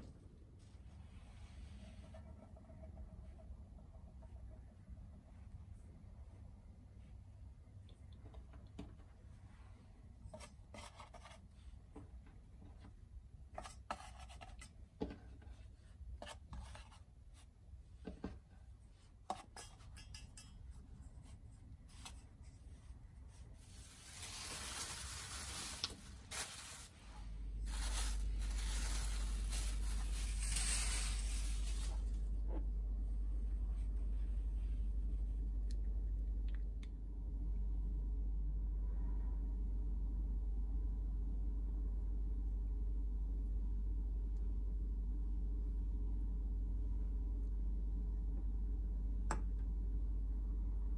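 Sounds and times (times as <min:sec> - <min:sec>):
low steady hum: 0:00.0 - 0:50.9
rustling hiss: 0:27.7 - 0:32.1.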